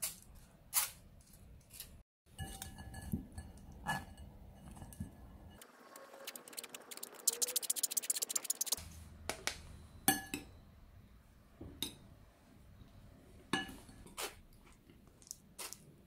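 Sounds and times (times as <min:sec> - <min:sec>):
metal utensils clinking on glass bowls: 0:02.3 - 0:05.1.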